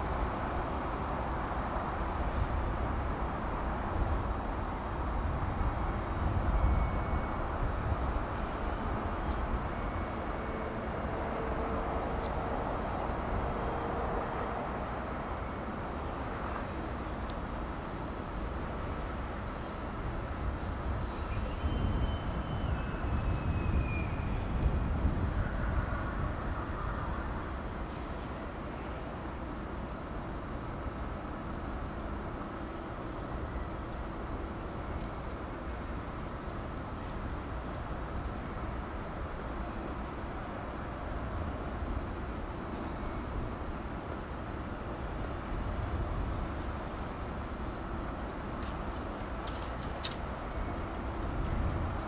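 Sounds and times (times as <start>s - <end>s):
falling whistle: 21.2s - 24.5s.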